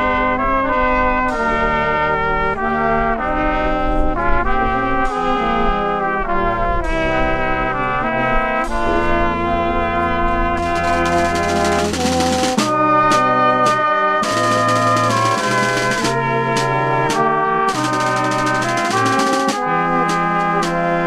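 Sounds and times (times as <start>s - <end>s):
brass band playing chords: 0.0s - 21.0s
drum: 10.6s - 21.0s.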